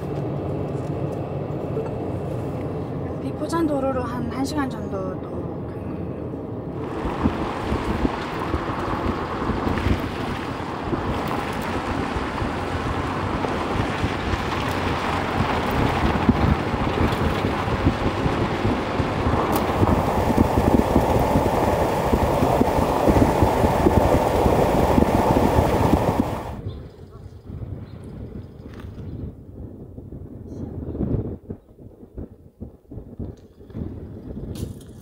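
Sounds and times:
vehicle tyres on dirt road: 0.0s - 3.4s, 6.6s - 27.0s
wind buffeting microphone: 6.4s - 35.0s.

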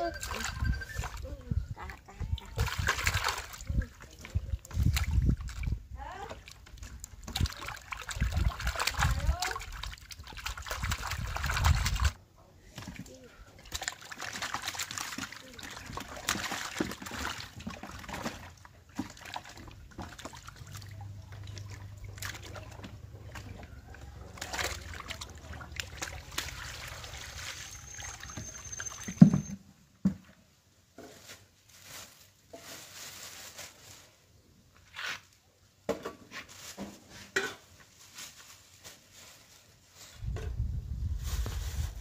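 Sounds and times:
water sloshing and splashing: 0.0s - 29.6s.

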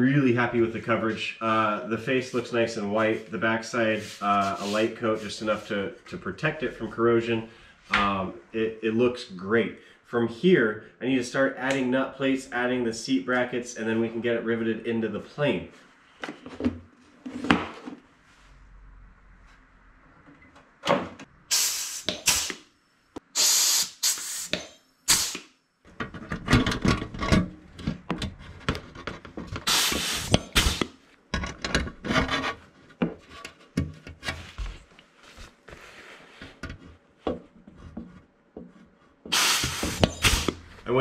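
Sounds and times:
hand tools scraping sheet metal: 39.3s - 40.7s.

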